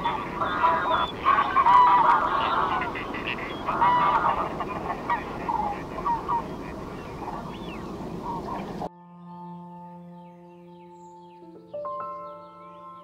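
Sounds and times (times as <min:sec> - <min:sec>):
goose honking: 0:00.0 - 0:08.9
steady background noise: 0:00.0 - 0:08.9.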